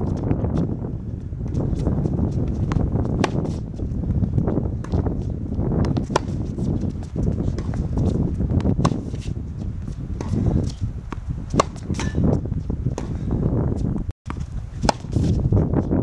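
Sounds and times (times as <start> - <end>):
ball bounces and footsteps: 0.0 - 16.0
tennis racket hitting ball: 1.5 - 3.7, 5.8 - 13.3, 14.3 - 15.4.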